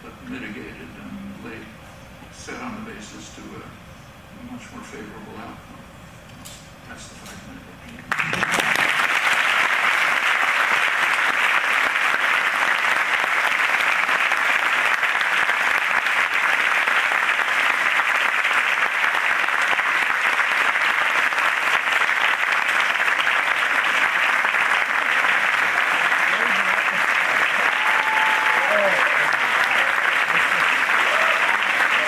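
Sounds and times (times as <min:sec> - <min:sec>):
audience applauding: 0:08.1 - 0:32.0.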